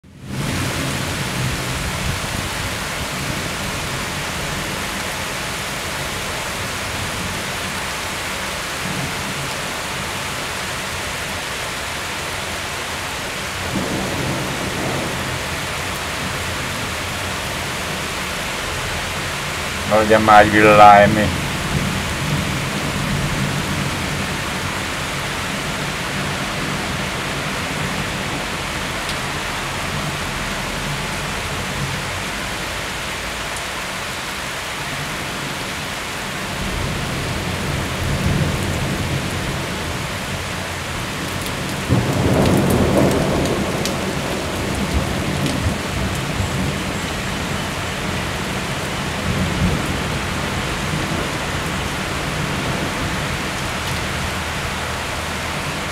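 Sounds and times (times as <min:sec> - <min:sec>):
rain hissing on pavement: 0:00.1 - 0:55.9
thunder rumbling: 0:13.6 - 0:17.4, 0:41.2 - 0:46.8.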